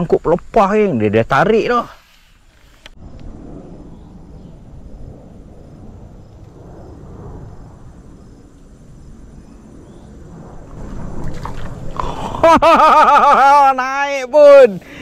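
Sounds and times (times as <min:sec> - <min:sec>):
insects chirping: 0:00.0 - 0:15.0
low steady rumble: 0:03.0 - 0:12.8.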